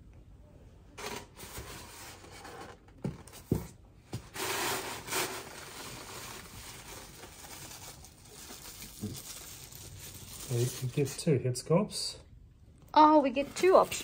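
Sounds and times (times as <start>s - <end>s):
packing material rustling: 4.2s - 11.2s.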